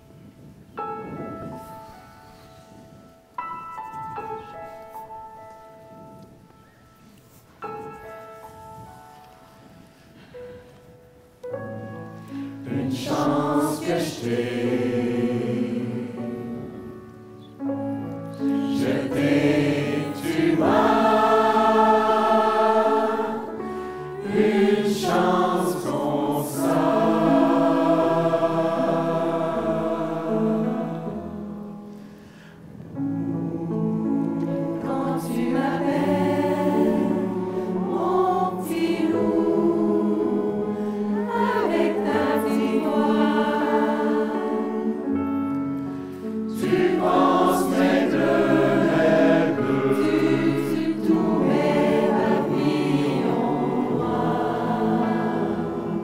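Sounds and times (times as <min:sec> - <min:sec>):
choir singing in harmony: 0:12.1 - 0:56.0.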